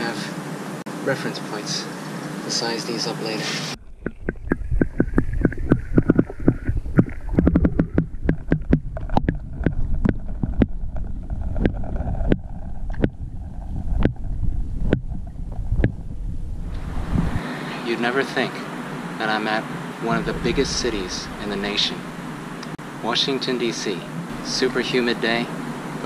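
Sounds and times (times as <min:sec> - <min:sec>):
muffled underwater rumble: 0:03.8 - 0:17.4, 0:20.0 - 0:22.8.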